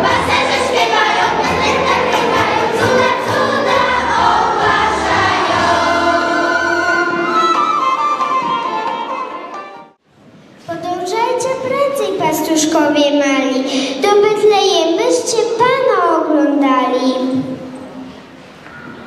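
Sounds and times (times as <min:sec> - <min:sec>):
children's choir singing: 0:00.0 - 0:09.8
instrumental accompaniment: 0:00.0 - 0:10.0.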